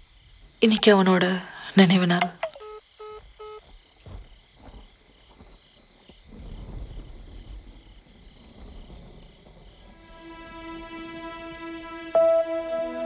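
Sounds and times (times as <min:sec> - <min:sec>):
crickets chirping: 0:00.0 - 0:13.0
electronic phone beeps: 0:02.2 - 0:03.6.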